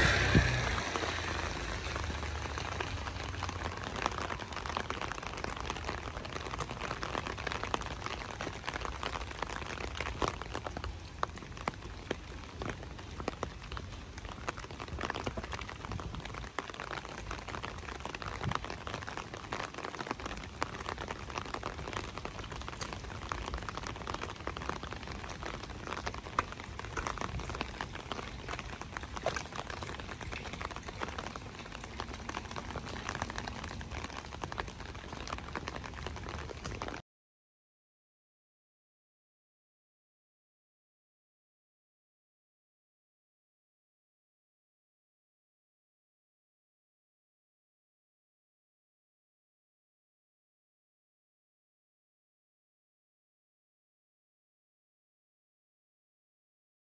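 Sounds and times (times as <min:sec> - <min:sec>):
light rain falling: 0:00.0 - 0:37.0.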